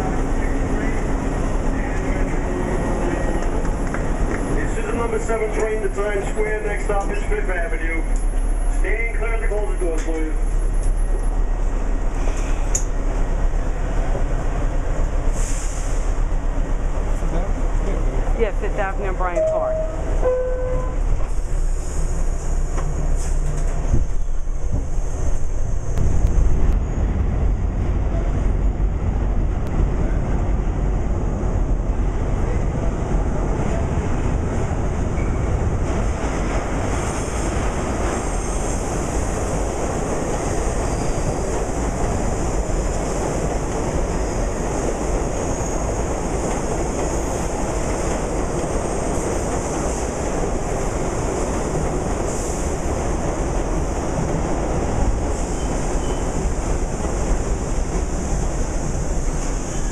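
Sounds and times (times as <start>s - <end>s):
subway train rumbling in tunnel: 0.0s - 59.9s.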